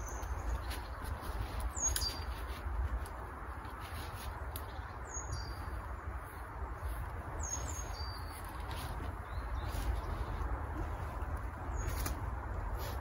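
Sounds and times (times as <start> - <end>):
small bird chirping: 0.0 - 2.6, 4.6 - 5.9, 6.8 - 12.2
steady low rumble: 0.0 - 13.0.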